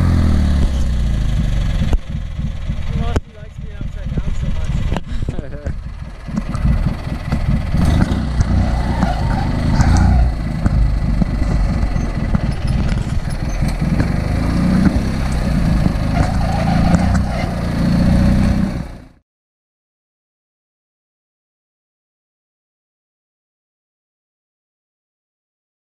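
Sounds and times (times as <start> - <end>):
lawn tractor engine running: 0.0 - 19.1.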